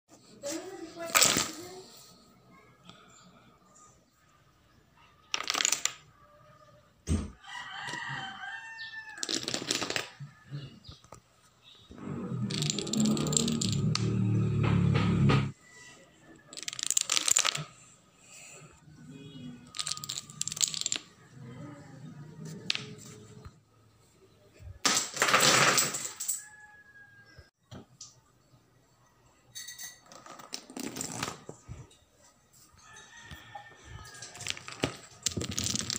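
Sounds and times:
wooden dominoes clattering: 5.3 - 6.1, 9.2 - 10.1, 12.5 - 14.2, 16.5 - 17.7, 19.6 - 21.1, 34.2 - 35.9
rooster crowing: 7.4 - 9.3, 26.3 - 27.5, 32.8 - 34.6.

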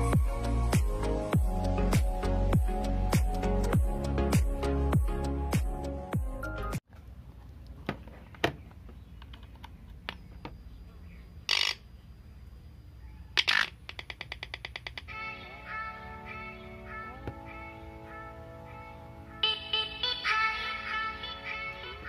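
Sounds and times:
music: 0.0 - 6.8, 15.1 - 22.0
clicks and handling noise: 6.9 - 10.6.

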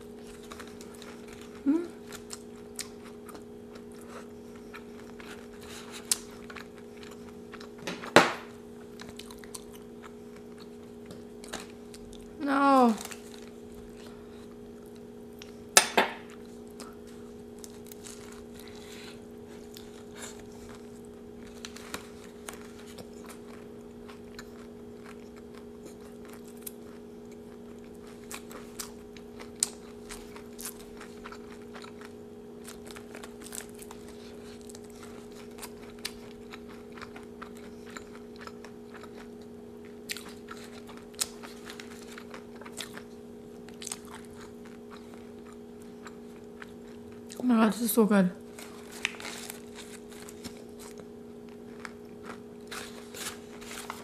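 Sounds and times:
close chewing with crunches: 0.0 - 8.1, 8.8 - 15.6, 16.2 - 47.5, 48.4 - 54.0
crunchy bite into taco: 13.0 - 47.4, 48.4 - 54.0.

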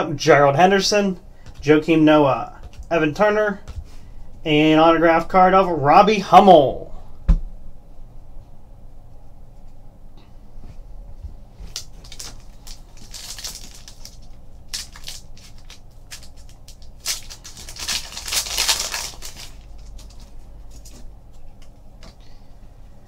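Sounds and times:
card pack wrapper crackling: 11.7 - 21.7.

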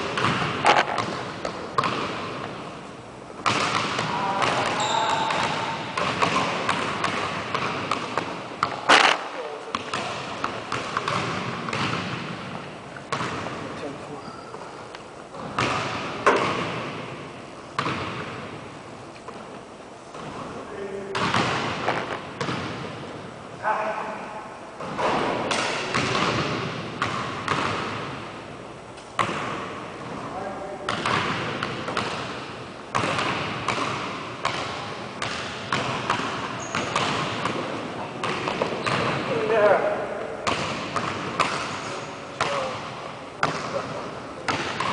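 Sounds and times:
basketball thuds echoing in gym: 0.0 - 13.9, 15.3 - 18.7, 20.1 - 28.4, 29.1 - 44.9
basketball bouncing on hardwood: 0.2 - 2.2, 3.4 - 9.1, 9.7 - 12.3, 13.1 - 13.6, 21.2 - 22.8, 29.2 - 29.6, 32.9 - 37.6, 38.2 - 39.2, 40.4 - 41.6.

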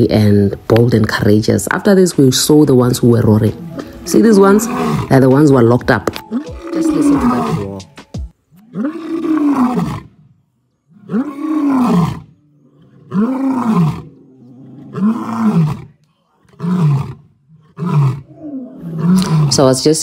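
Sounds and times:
lion roaring: 3.6 - 5.4, 6.3 - 7.8, 8.5 - 19.8.

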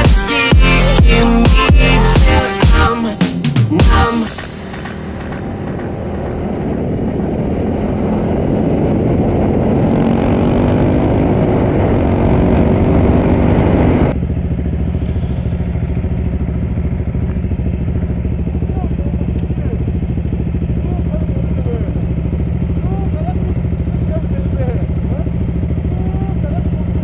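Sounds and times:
motorcycle engine: 0.0 - 27.0
wind rush: 4.4 - 16.0.

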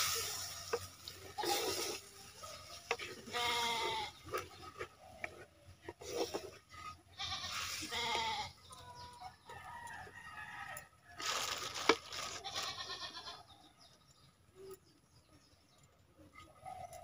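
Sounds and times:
wooden spatula scraping clay pot: 0.0 - 8.5
goats bleating: 3.3 - 4.1, 7.2 - 8.5, 12.4 - 13.4.

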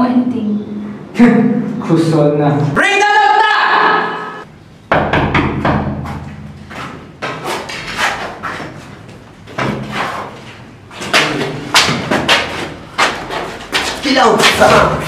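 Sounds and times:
door knocks and thuds: 4.9 - 6.6.

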